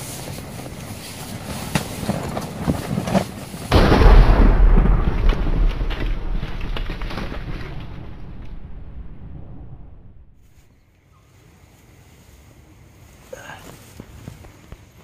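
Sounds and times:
deep cinematic boom: 3.7 - 10.6.

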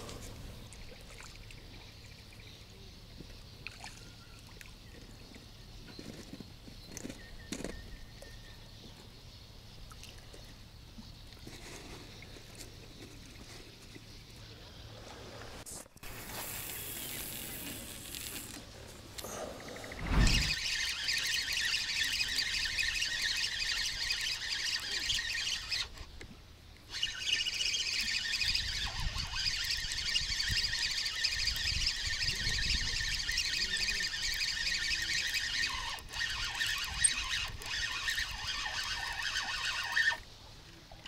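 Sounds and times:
fishing reel gear whir: 16.0 - 26.1, 26.8 - 40.3.

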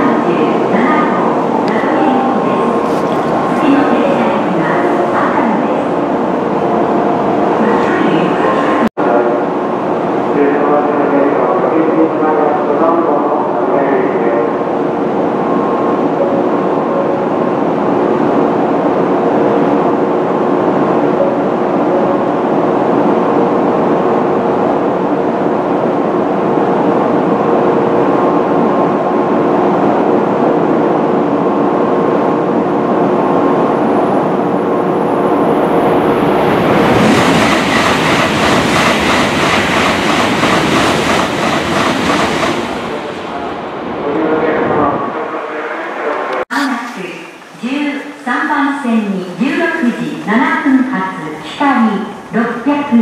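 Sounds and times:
train rumble: 0.0 - 53.0
train rushing past: 0.0 - 53.0.

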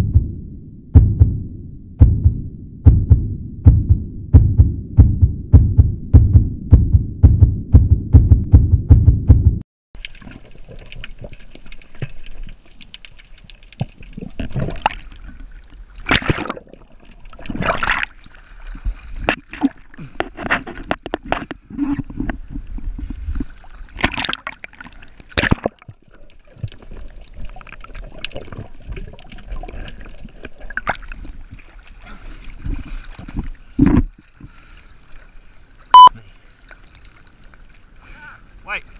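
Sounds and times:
loud low throbbing: 0.0 - 9.6
sea water sloshing and splashing: 10.0 - 38.9
short loud beep: 35.9 - 36.1.

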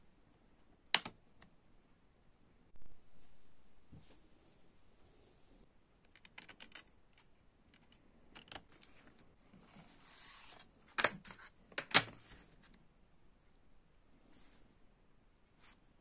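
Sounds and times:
soft sliding rustle: 9.5 - 10.7, 14.2 - 14.7.

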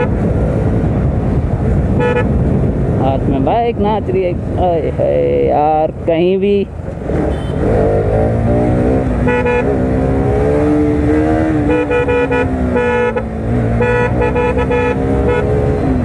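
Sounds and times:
vehicle horn honking: 2.0 - 2.3, 7.3 - 7.7, 9.2 - 9.7, 11.6 - 15.6.

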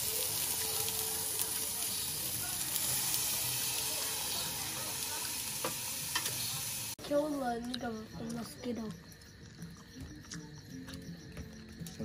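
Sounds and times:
food sizzling on a grill: 0.0 - 8.9.

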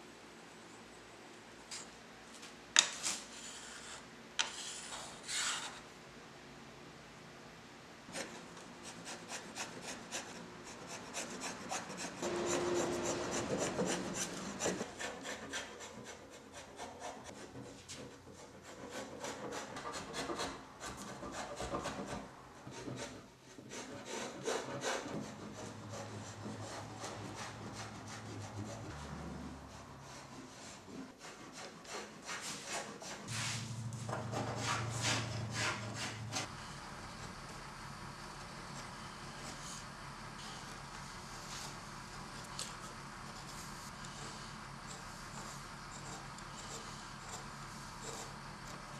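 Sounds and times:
blade scraping wood: 8.1 - 36.5, 43.4 - 48.9.

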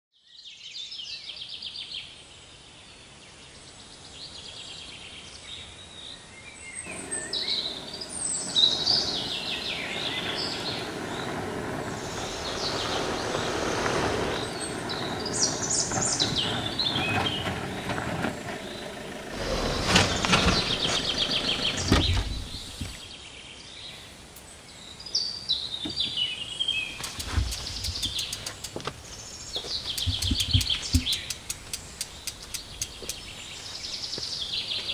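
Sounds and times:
birds chirping: 5.1 - 34.9
car on dirt road: 6.9 - 23.1, 26.8 - 34.8
heavy knocks and clatter: 15.8 - 23.0
bike clicks: 26.9 - 33.6.

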